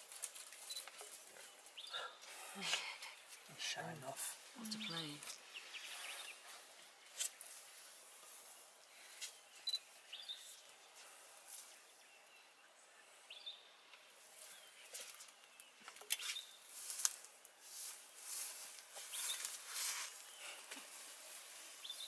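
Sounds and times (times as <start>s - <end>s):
sharp rustles and snaps: 0.0s - 1.6s, 6.5s - 7.7s, 14.9s - 21.4s.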